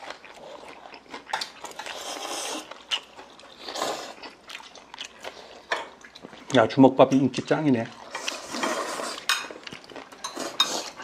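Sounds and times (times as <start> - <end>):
slurping noodles: 1.7 - 2.9, 3.6 - 4.3, 7.9 - 9.3, 10.3 - 11.0.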